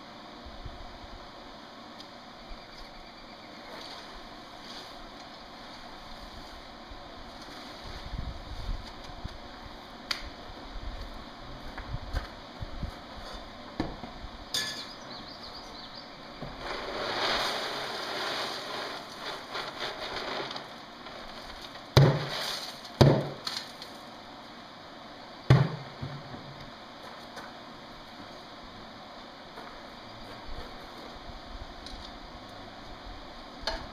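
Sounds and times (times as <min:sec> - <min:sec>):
coal rattling from a metal bucket: 0:16.5 - 0:24.0.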